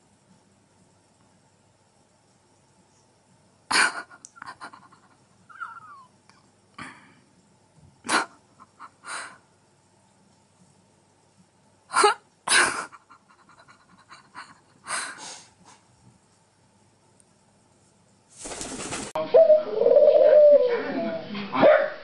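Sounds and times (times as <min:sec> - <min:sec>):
collared dove cooing: 0:19.2 - 0:21.2.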